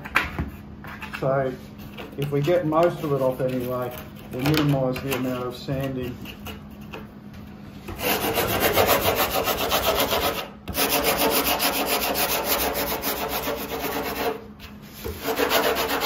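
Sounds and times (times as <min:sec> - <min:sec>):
sanding block scratching: 0:07.9 - 0:16.0.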